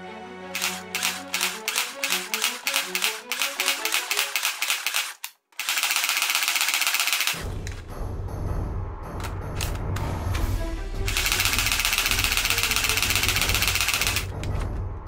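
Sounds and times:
toy gun rapid firing: 0.6s - 7.5s, 11.0s - 14.4s.

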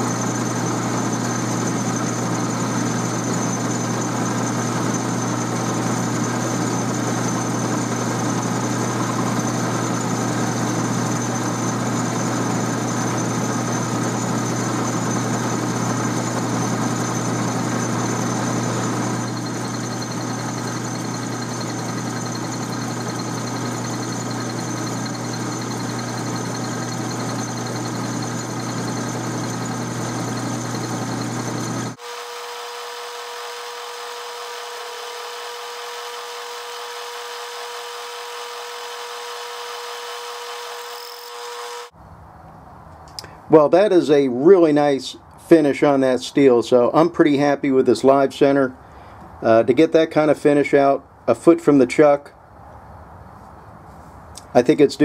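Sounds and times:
higher whine: 0.0s - 37.6s
lathe motor humming: 0.0s - 41.9s
lathe whine: 0.0s - 42.0s.

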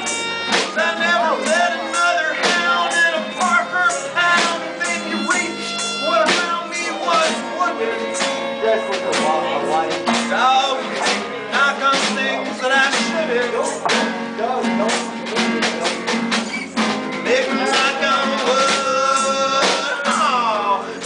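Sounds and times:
bowed fiddle: 0.0s - 11.5s
drum hits: 0.0s - 20.8s
strummed acoustic guitars: 0.0s - 21.0s.

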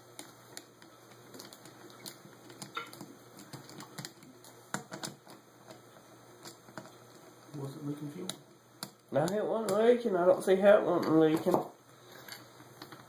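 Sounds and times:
light clicks and taps of small parts: 0.1s - 5.8s, 6.4s - 9.8s.

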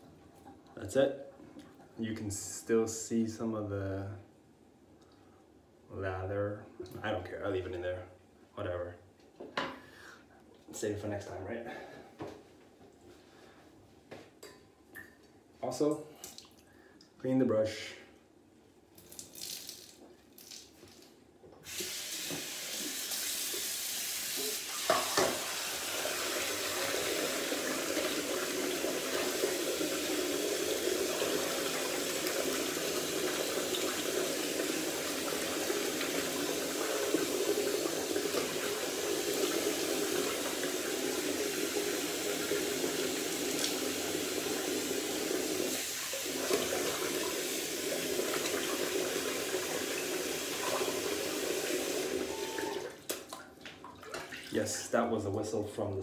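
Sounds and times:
tap water running: 21.6s - 54.8s.

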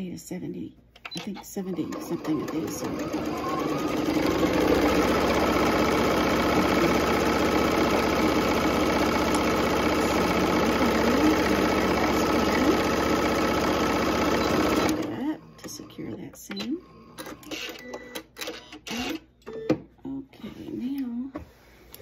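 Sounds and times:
sewing machine stitching: 1.6s - 16.0s, 16.6s - 19.2s.

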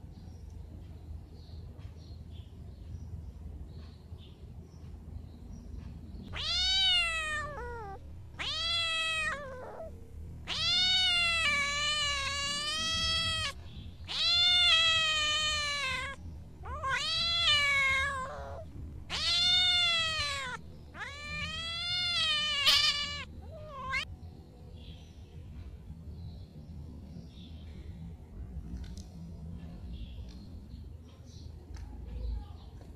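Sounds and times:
drawn-out high animal cries: 6.4s - 24.0s.

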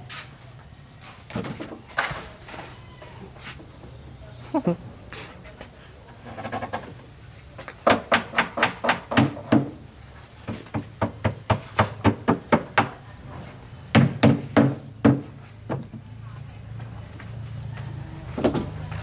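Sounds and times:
hammer knocking on wood: 7.8s - 9.8s, 10.5s - 13.0s, 13.9s - 16.0s.

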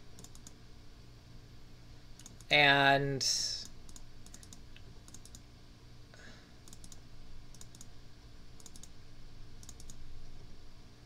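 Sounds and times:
steady low hum: 0.0s - 11.0s
computer mouse clicking: 0.1s - 0.6s, 2.2s - 2.5s, 3.6s - 5.4s, 6.6s - 7.9s, 8.6s - 9.0s, 9.6s - 10.0s.

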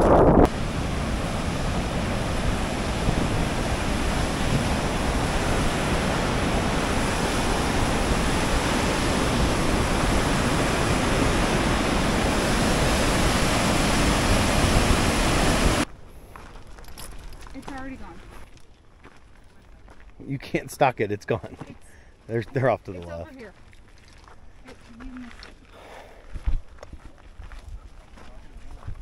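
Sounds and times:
whitewater roaring over rocks: 0.0s - 15.9s.

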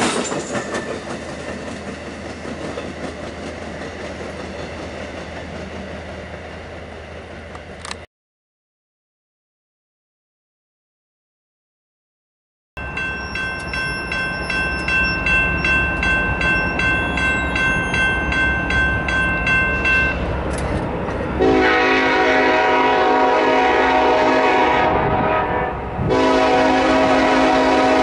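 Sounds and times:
diesel locomotive rumble: 0.0s - 8.1s, 12.8s - 28.0s
bell ringing: 12.8s - 20.2s
locomotive air horn blasts: 21.4s - 28.0s.

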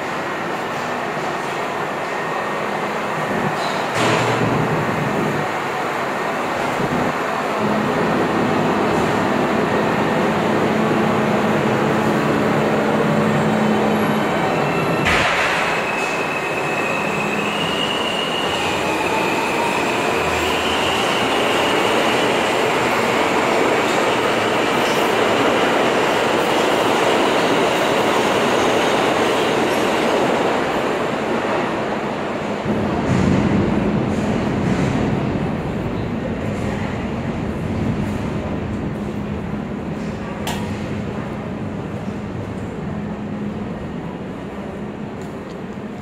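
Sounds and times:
subway train wheels rumbling on rail: 0.0s - 46.0s
high-pitched wheel squeal: 13.9s - 21.4s.

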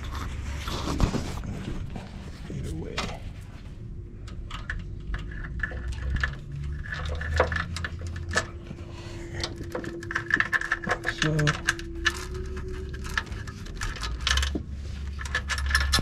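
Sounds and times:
faint steady hum: 0.0s - 16.0s
metal parts and tools clinking: 4.2s - 16.0s.

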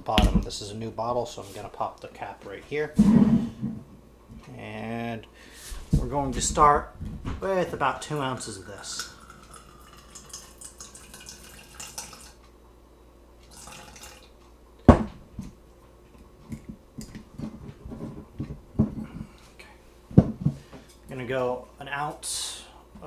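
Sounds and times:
liquid trickling into plastic beaker: 8.5s - 12.4s, 13.4s - 14.3s
bottles knocking on wooden counter: 20.2s - 20.6s.

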